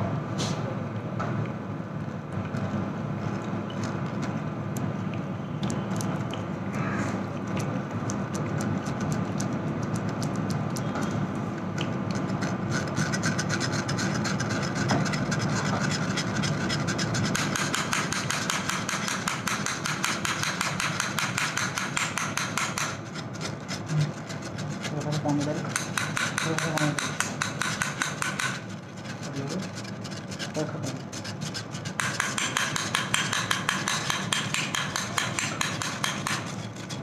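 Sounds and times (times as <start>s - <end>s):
whisk scraping metal mesh strainer: 12.1s - 37.0s.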